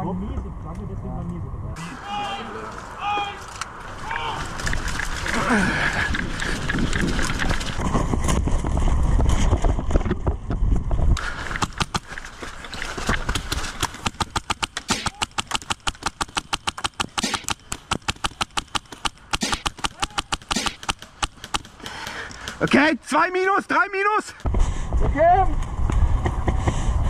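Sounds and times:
airsoft rifle firing: 13.2 - 21.9.

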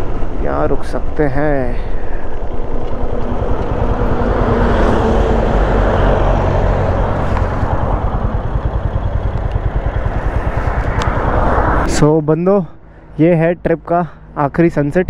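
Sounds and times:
road and wind noise: 0.0 - 15.0
rushing noise: 1.9 - 12.0
motorcycle engine running: 2.6 - 11.8.

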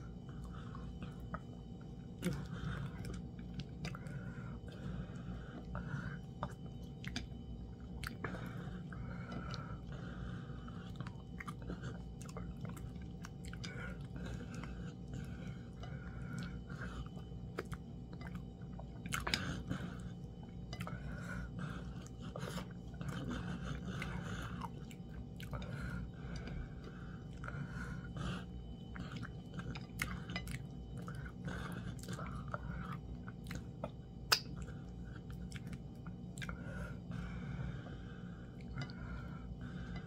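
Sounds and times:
person chewing food: 0.0 - 40.0
wet smacking and mouth clicks: 33.3 - 36.6.

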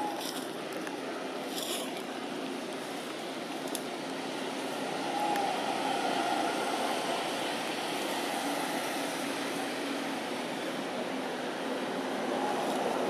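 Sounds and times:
passing traffic hum: 0.0 - 13.0.

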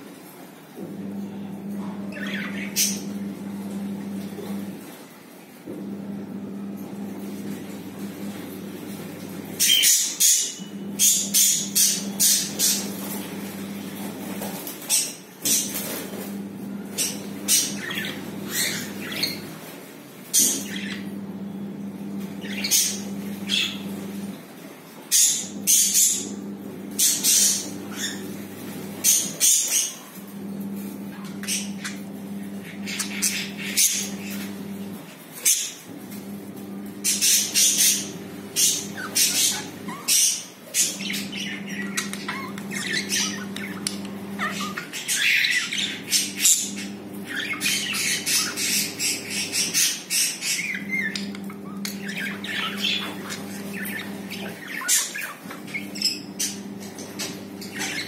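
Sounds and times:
budgerigars chirping: 9.6 - 13.2, 16.9 - 19.5, 20.4 - 21.0, 37.0 - 58.0.

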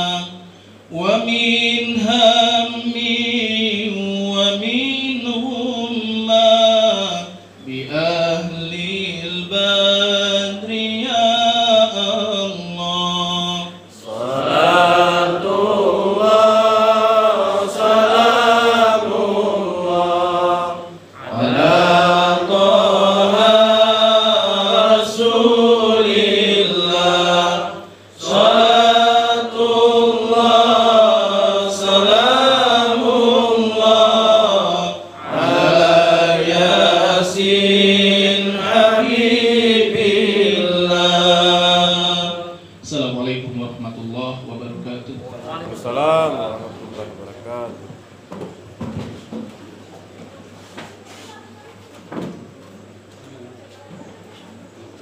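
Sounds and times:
man chanting into a microphone: 0.0 - 14.3, 40.4 - 47.8.

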